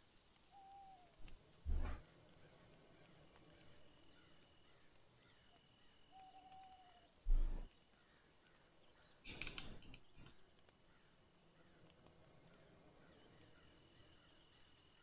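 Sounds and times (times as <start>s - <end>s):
small clicks: 9.3s - 10.8s.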